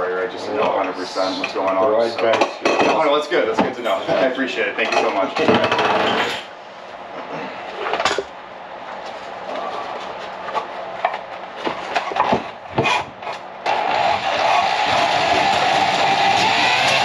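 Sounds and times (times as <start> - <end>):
low background noise: 0.0 - 13.7
hard objects knocking and clattering: 4.9 - 6.4, 9.5 - 13.4.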